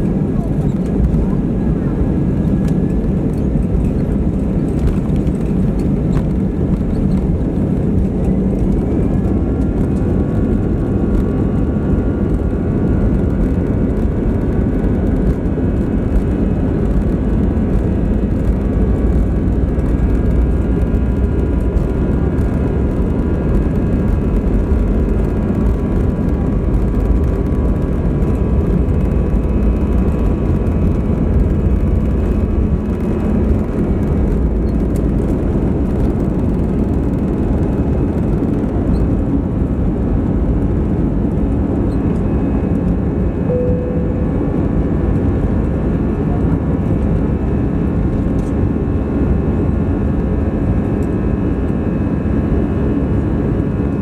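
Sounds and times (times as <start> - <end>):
aircraft cabin engine rumble: 0.0 - 54.0
faint rising whine: 41.8 - 46.2.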